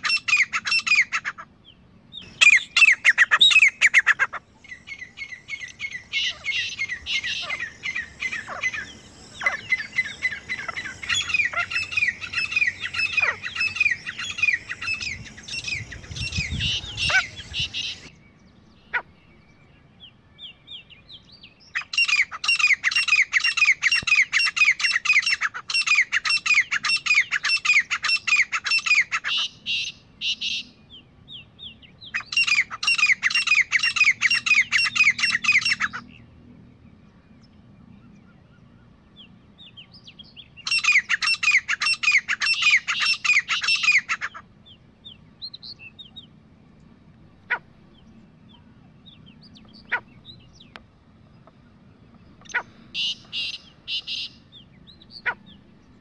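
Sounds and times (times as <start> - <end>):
francolins calling harshly: 0.0 - 1.5, 2.1 - 18.1, 21.6 - 30.8, 31.8 - 36.2, 40.6 - 46.4, 52.2 - 56.0
short bird calls: 0.0 - 18.1, 40.6 - 46.3, 51.4 - 56.0.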